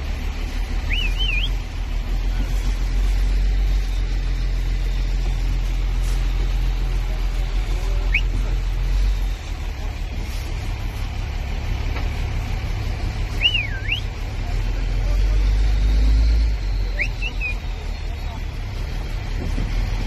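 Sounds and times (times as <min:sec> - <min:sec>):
truck engine running: 0:00.0 - 0:20.0
rising whistle: 0:00.7 - 0:01.6, 0:13.3 - 0:14.2, 0:16.0 - 0:18.0
warbling whistle: 0:00.7 - 0:01.6, 0:13.3 - 0:14.1, 0:16.6 - 0:17.7.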